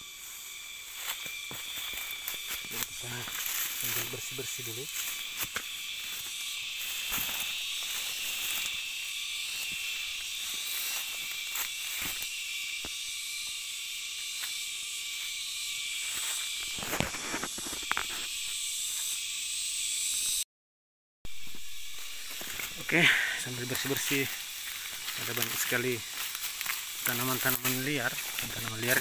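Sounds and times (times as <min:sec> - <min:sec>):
insects buzzing: 0:00.0 - 0:20.4, 0:21.3 - 0:29.0
plants rustling and snapping: 0:23.7 - 0:29.0.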